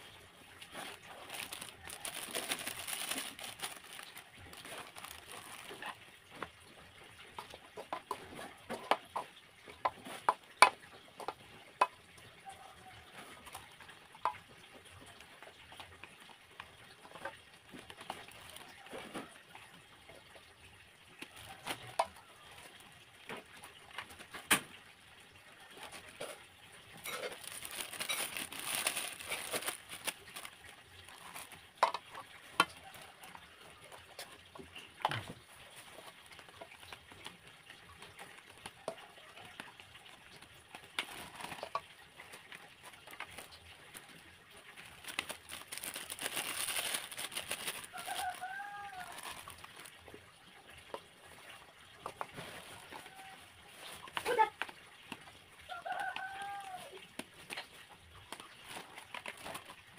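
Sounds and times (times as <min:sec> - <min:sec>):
plastic bag rustling: 0:00.0 - 0:06.4, 0:17.8 - 0:19.3, 0:27.0 - 0:32.2, 0:40.0 - 0:50.1, 0:58.3 - 0:59.9.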